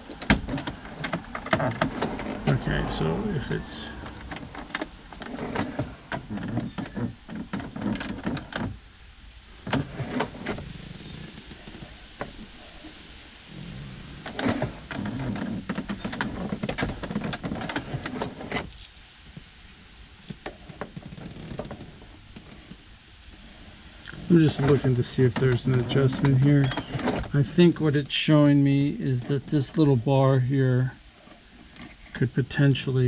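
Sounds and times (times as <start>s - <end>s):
keys jingling: 18.7s - 19.1s.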